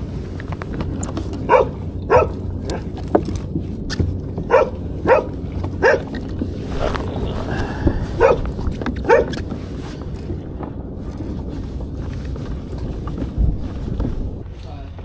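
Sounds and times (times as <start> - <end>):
dog barking: 1.4 - 2.9, 4.5 - 6.1, 8.0 - 9.4.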